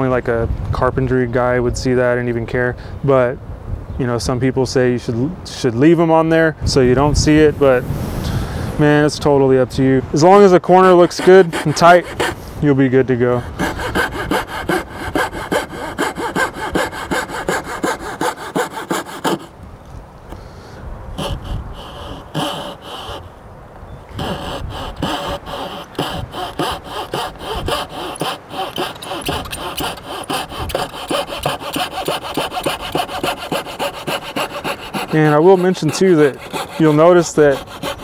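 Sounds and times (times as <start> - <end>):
hand saw cutting through board: 10.8 - 12.5, 13.2 - 19.5, 21.2 - 23.3, 24.2 - 38.0.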